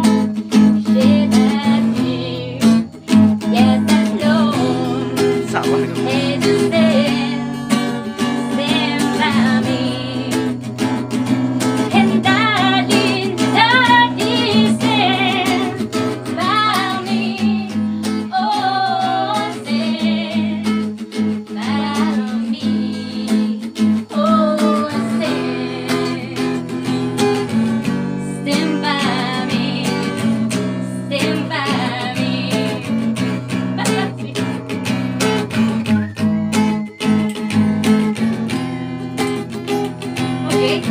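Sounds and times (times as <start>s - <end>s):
strummed acoustic guitar: 0.0s - 40.9s
woman singing with vibrato: 0.8s - 2.8s, 3.4s - 10.6s, 11.9s - 20.9s, 21.5s - 27.5s, 28.1s - 33.1s, 33.8s - 34.6s, 40.2s - 40.9s.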